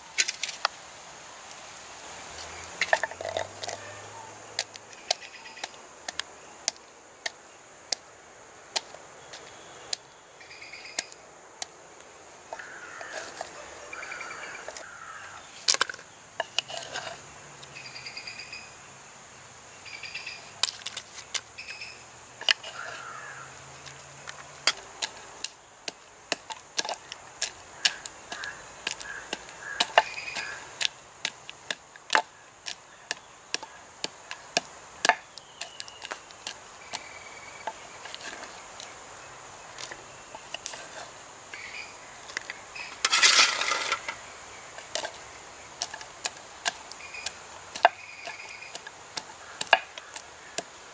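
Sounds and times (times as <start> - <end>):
high insect drone: 0.0 - 50.9
seeds clattering against pots: 2.2 - 8.0, 12.5 - 17.3, 22.4 - 50.8
birds calling: 2.4 - 7.6, 8.8 - 18.8, 19.8 - 50.9.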